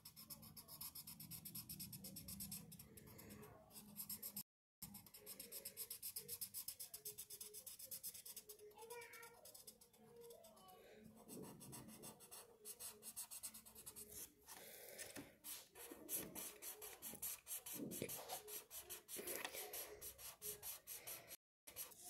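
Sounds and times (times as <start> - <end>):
marker scratching on paper: 9.2 - 10.6, 11.2 - 14.3, 15.4 - 22.0.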